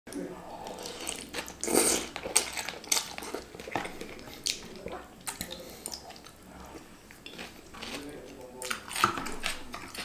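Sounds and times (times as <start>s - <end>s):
man chewing and slurping noodles: 0.4s - 8.0s.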